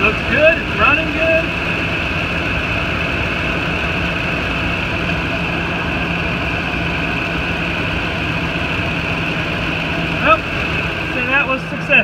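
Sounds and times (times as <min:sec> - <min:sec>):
truck engine idling: 0:00.0 - 0:12.0.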